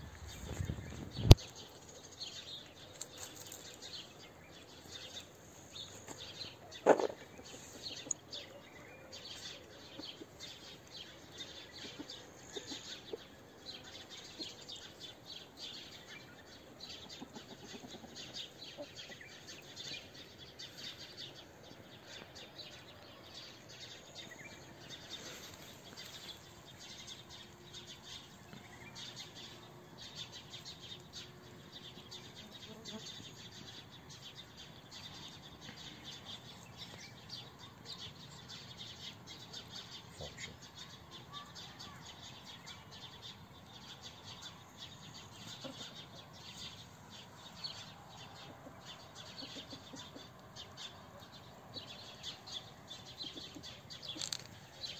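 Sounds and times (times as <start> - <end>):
small birds chirping: 0.0 - 54.9.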